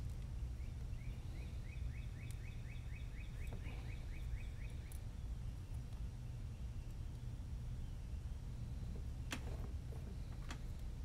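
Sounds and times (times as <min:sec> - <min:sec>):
steady low hum: 0:00.0 - 0:11.0
bird chirping: 0:00.3 - 0:08.4.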